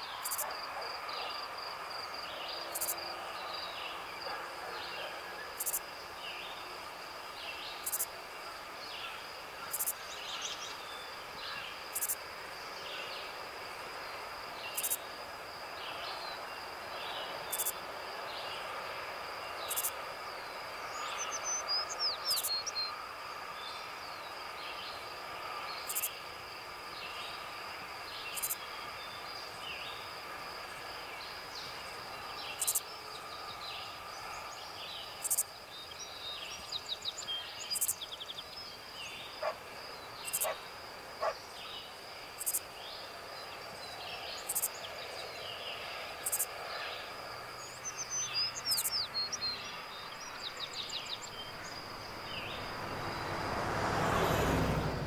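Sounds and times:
high insect drone: 0.0 - 55.0
birds chirping: 47.6 - 54.2.

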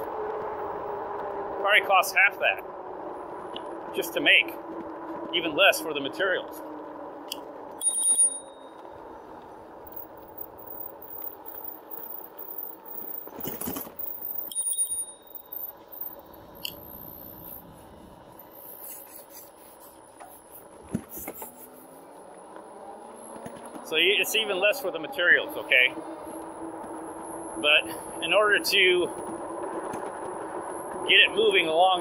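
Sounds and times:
electric bike motor hum: 0.0 - 1.9, 2.6 - 32.0
metallic pings: 7.8 - 8.8, 14.4 - 15.7
bike bump: 20.2 - 21.6.

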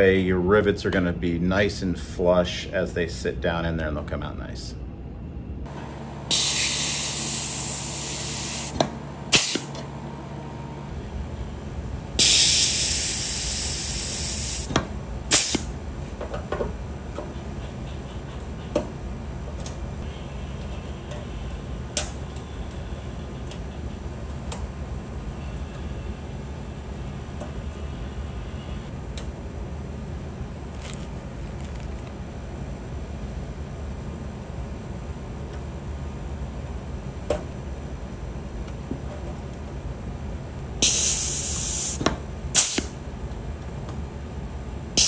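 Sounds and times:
hiss of air: 6.3 - 9.7, 12.2 - 15.7, 40.8 - 43.0.

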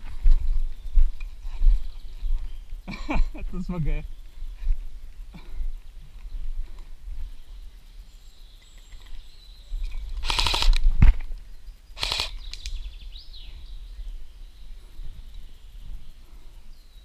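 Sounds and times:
airsoft rifle bursts of clicks: 10.2 - 11.0, 12.0 - 12.8.

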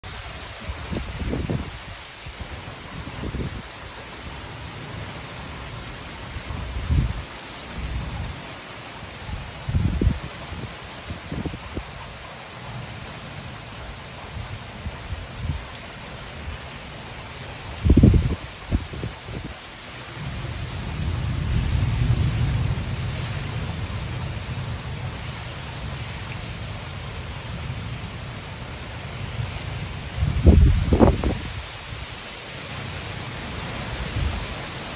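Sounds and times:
heavy rain on pavement: 0.0 - 34.9
wind buffeting microphone: 0.2 - 3.8, 6.2 - 8.4, 9.2 - 13.0, 17.6 - 24.6, 29.2 - 32.1
low thunder rumble: 17.8 - 19.6, 20.2 - 26.0, 29.4 - 31.6.

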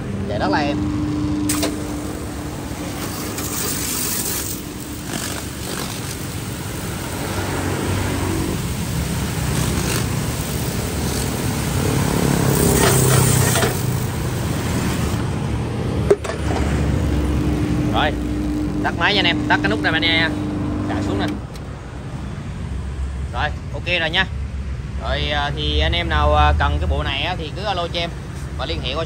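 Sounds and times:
pressure washer motor hum: 0.0 - 21.8
sharp click: 1.5 - 1.9
water jet hissing on concrete: 1.5 - 15.2.

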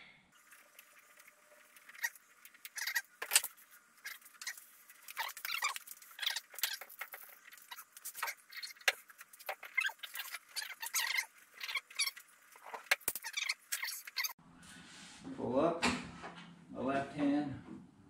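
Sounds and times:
squeaks and scratches: 0.4 - 14.4.

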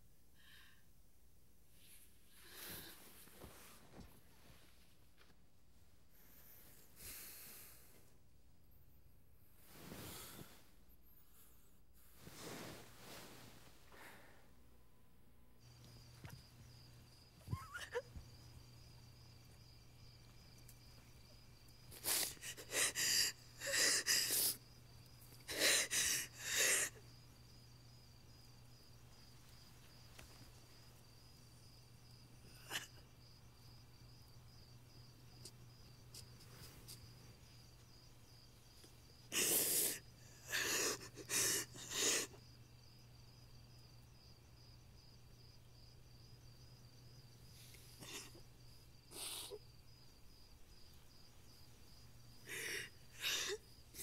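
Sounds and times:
crickets chirping: 1.7 - 5.3, 6.0 - 54.0
woman sobbing: 17.4 - 18.1.

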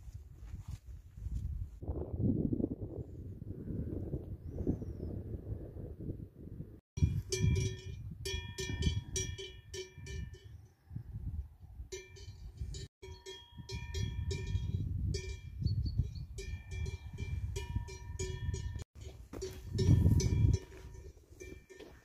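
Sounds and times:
cowbells clanking: 7.0 - 10.6, 11.9 - 22.0.

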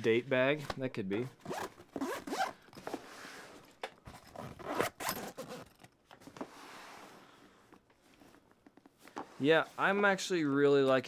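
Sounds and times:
zippers rasping: 1.4 - 3.0, 4.1 - 6.0
bag fabric shifting: 4.1 - 5.9.

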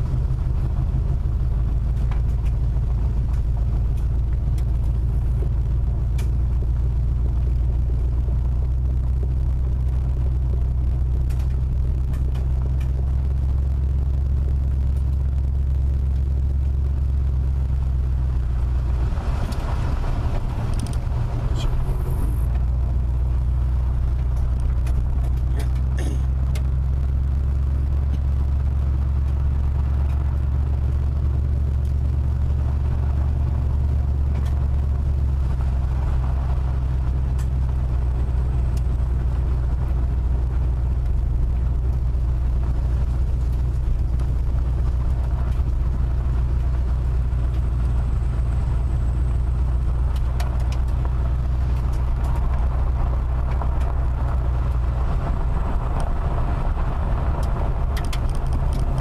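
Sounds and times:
car engine and tyres drone: 0.0 - 59.0
gravel rumbling under tyres: 0.0 - 59.0
faint ticks: 3.2 - 8.0, 9.1 - 13.2.

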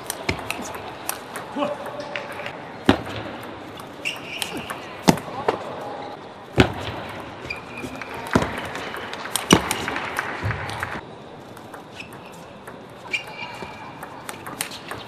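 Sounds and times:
table tennis ball clicks: 0.0 - 5.6, 6.7 - 15.0
hall background noise: 0.0 - 15.0
shoe squeaks: 3.8 - 5.0, 7.4 - 8.2, 11.8 - 15.0.

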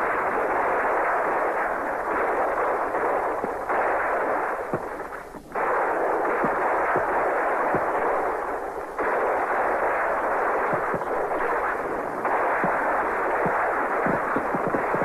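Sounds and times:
crackle of massed gunfire: 0.0 - 15.0.

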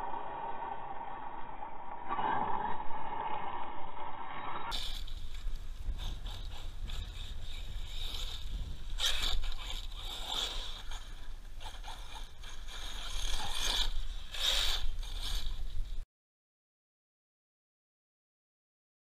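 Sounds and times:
low rumble: 0.0 - 8.9.

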